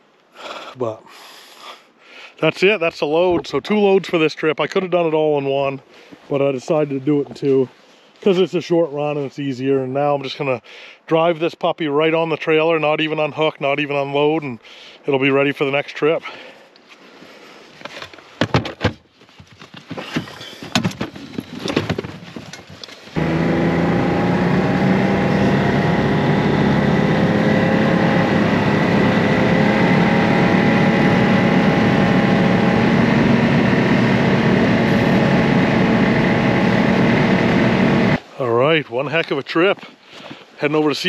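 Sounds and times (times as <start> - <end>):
gear clattering in plastic trunk: 17.9 - 23.0
off-road vehicle engine running: 23.2 - 38.2.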